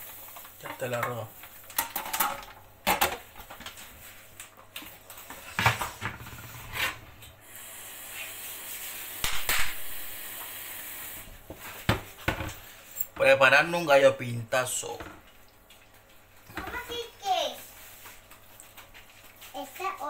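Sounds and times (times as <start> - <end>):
steady hiss: 7.4 - 11.8.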